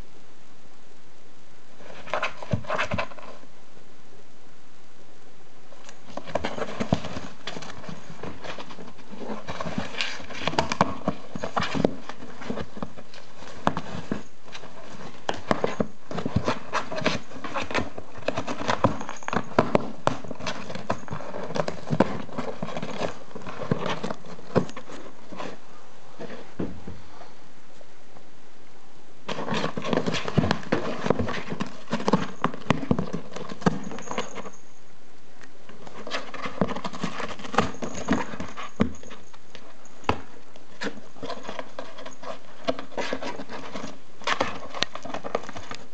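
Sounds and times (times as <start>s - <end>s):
cat gnawing cardboard: 5.8s - 25.6s, 29.3s - 34.6s, 35.4s - 45.9s.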